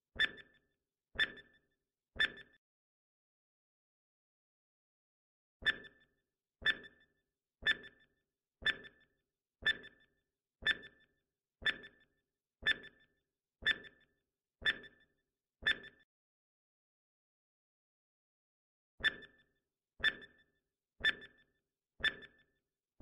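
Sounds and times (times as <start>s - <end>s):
countdown timer ticks: 5.6s - 6.0s, 6.6s - 7.0s, 7.6s - 14.0s, 21.0s - 21.4s.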